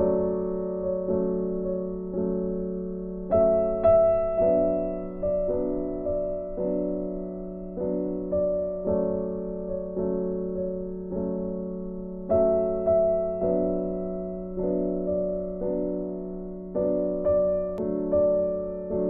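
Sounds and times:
soft piano chords: 0:00.0 - 0:19.0.

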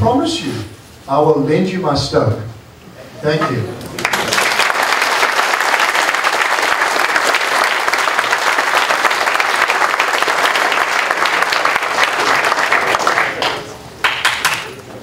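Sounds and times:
audience applauding: 0:03.8 - 0:14.9.

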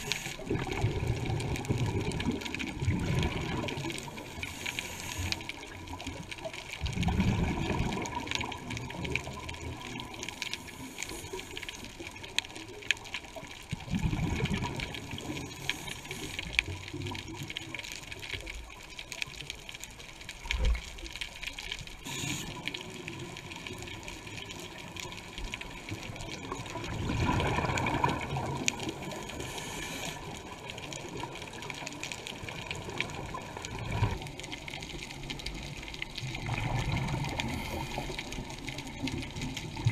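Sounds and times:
steady regulator hiss: 0:00.0 - 0:00.5, 0:04.2 - 0:05.8, 0:22.0 - 0:22.7, 0:29.2 - 0:30.6.

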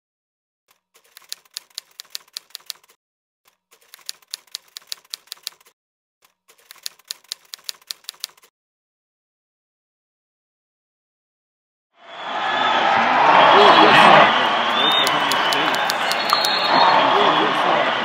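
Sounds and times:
typewriter keys clacking: 0:00.7 - 0:05.7, 0:06.3 - 0:08.5, 0:15.0 - 0:16.6.

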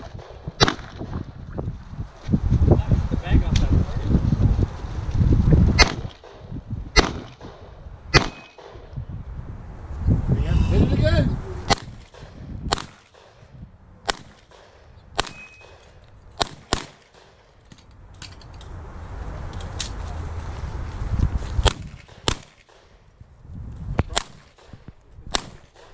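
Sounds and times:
pistol shots: 0:00.0 - 0:01.2, 0:05.8 - 0:08.9, 0:11.7 - 0:13.4, 0:14.0 - 0:17.5, 0:21.6 - 0:22.9, 0:24.1 - 0:25.9.

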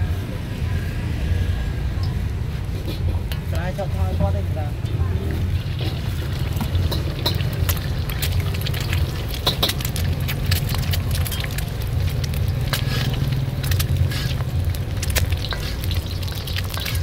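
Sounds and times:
steady low rumble: 0:04.3 - 0:17.0
oil crackling and spattering: 0:04.8 - 0:17.0
egg frying in hot oil: 0:05.3 - 0:17.0.

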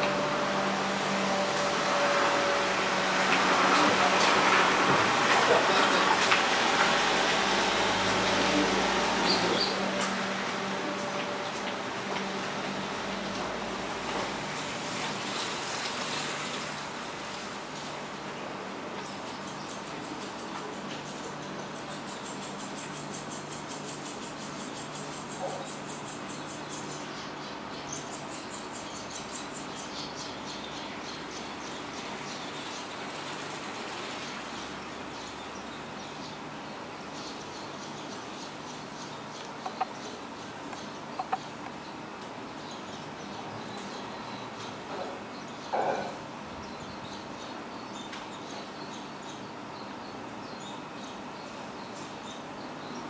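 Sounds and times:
steady background noise: 0:00.0 - 0:53.0
nestlings begging chirps: 0:37.2 - 0:44.8.

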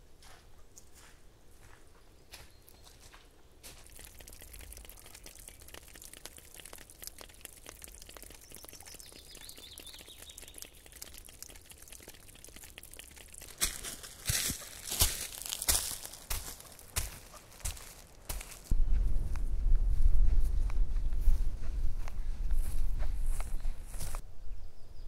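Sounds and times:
faint crackling and ticking: 0:03.6 - 0:18.7
loud crunch: 0:12.7 - 0:18.8.

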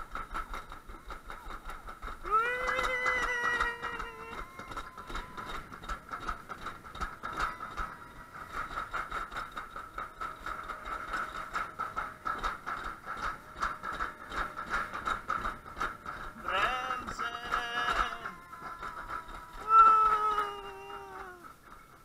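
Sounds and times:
clicks and knocks: 0:00.0 - 0:22.0
sled rattling down metal track: 0:00.0 - 0:22.0.

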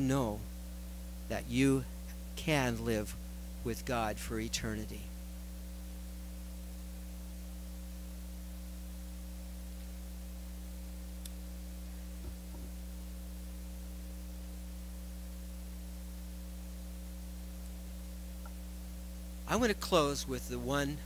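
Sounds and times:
electrical mains hum: 0:00.0 - 0:21.0
faint click: 0:11.2 - 0:11.4.

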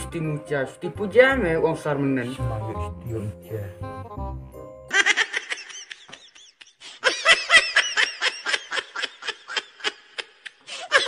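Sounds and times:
high-pitched laughter: 0:04.9 - 0:11.0.

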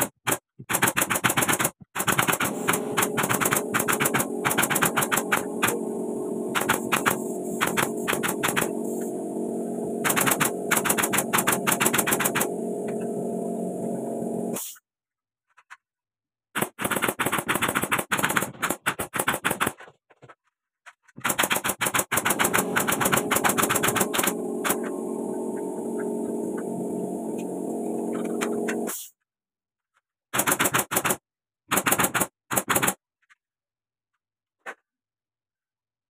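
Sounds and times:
nail gun firing into wood: 0:00.2 - 0:02.6, 0:30.3 - 0:33.0.

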